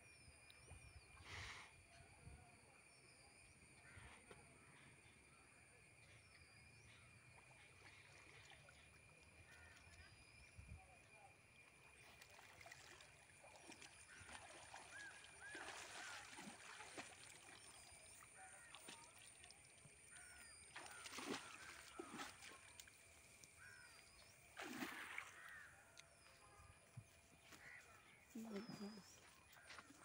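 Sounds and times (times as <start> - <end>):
water sloshing and splashing: 11.5 - 25.7.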